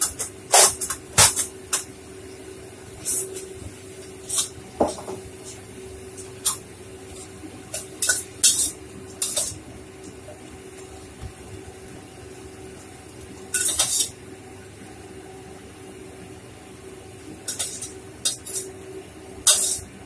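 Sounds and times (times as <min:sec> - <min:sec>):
stove hum: 0:00.0 - 0:20.0
metal spatula scraping a wok: 0:13.6 - 0:14.2, 0:17.5 - 0:18.7, 0:19.4 - 0:19.9.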